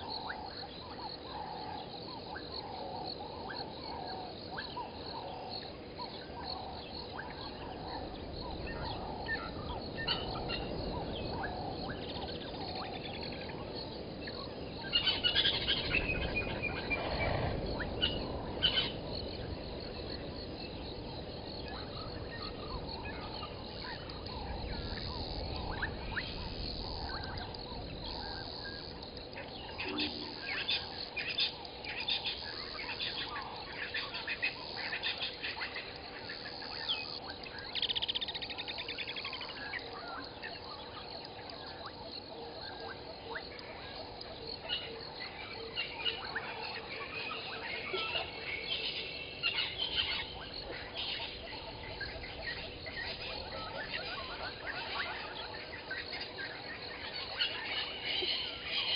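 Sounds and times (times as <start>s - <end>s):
outdoor background noise: 0.0s - 58.9s
birds chirping and calling: 3.6s - 19.4s, 44.6s - 58.9s.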